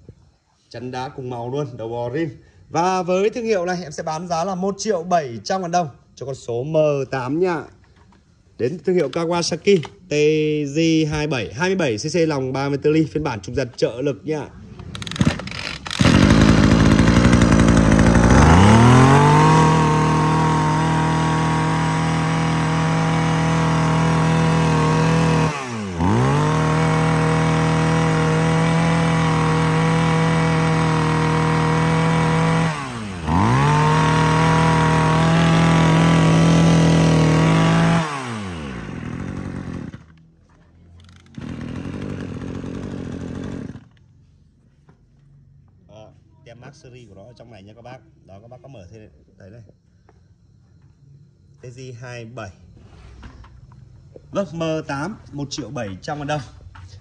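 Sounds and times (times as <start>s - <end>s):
brush cutter engine revving: 14.9s - 40.2s, 41.1s - 44.0s.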